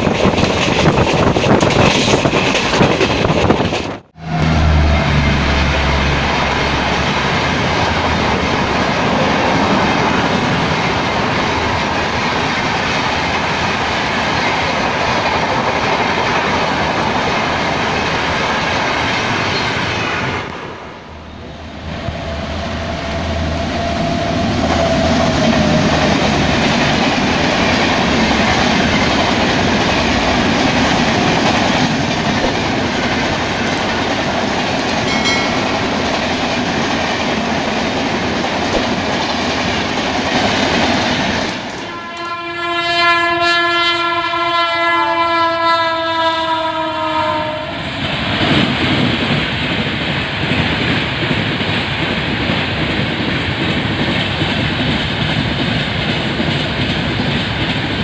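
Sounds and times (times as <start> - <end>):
clickety-clack over rail joints: 0.0 - 4.0, 24.0 - 42.3, 47.9 - 58.0
train wheels rushing on rails: 0.0 - 42.4, 46.2 - 58.0.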